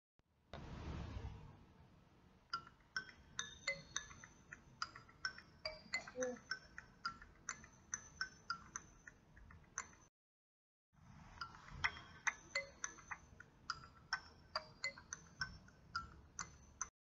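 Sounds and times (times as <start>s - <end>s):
bright plinked notes music: 2.6s - 9.1s, 11.4s - 16.9s.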